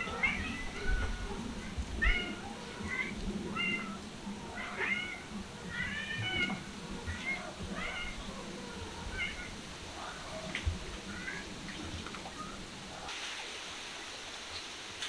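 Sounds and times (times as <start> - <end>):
cat meowing: 2.0 - 9.5.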